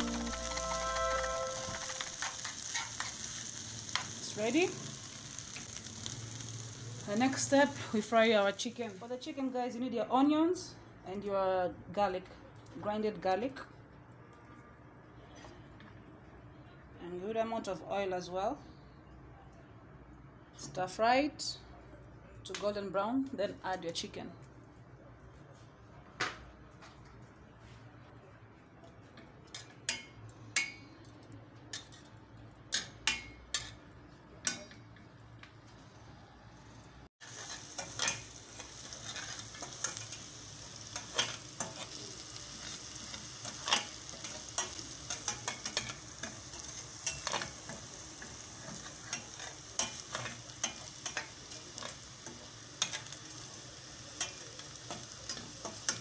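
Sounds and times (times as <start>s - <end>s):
onions frying in oil: 0.0s - 10.0s, 36.8s - 56.0s.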